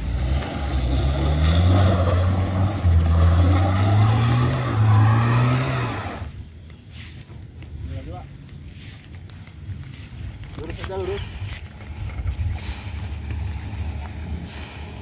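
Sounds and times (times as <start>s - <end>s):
car engine revving hard: 0.0s - 6.3s.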